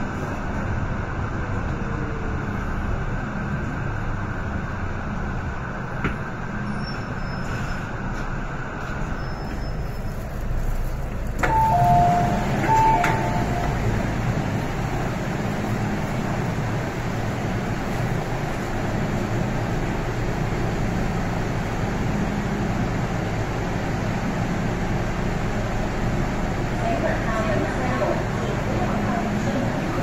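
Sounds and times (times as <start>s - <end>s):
train wheels and motors rumbling: 0.0s - 30.0s.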